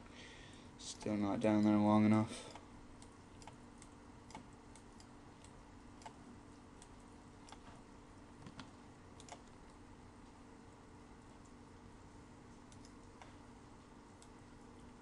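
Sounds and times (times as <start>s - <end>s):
low steady hum: 0.0s - 15.0s
computer mouse and keyboard clicks: 2.5s - 6.2s, 6.8s - 7.8s, 8.4s - 9.8s, 12.7s - 13.4s.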